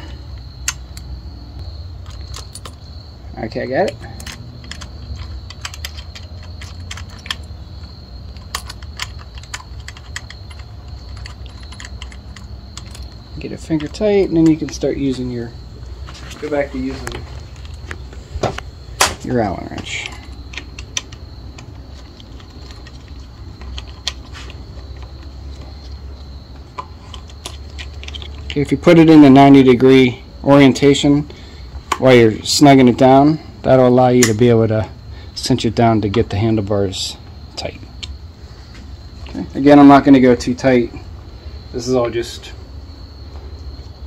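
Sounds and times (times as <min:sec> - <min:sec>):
steady low hum: 0:00.0 - 0:44.0
keys jangling against metal: 0:02.0 - 0:02.8, 0:03.9 - 0:14.6
metallic clicks of bolt and lever: 0:03.8 - 0:07.6, 0:08.3 - 0:13.2.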